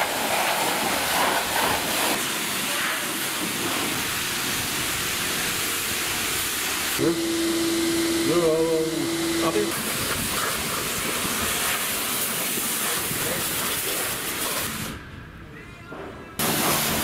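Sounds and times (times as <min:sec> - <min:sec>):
pressure washer spraying water: 0:00.0 - 0:15.0, 0:16.4 - 0:17.0
steady hum: 0:04.6 - 0:11.2.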